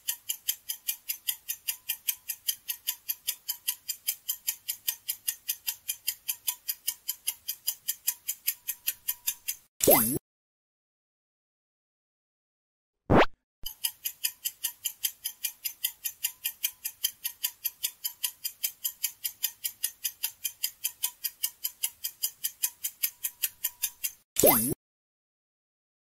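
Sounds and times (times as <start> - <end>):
timer ticking: 0.0 - 10.2, 13.6 - 24.8
pitch-sweeping pop: 13.1 - 13.4.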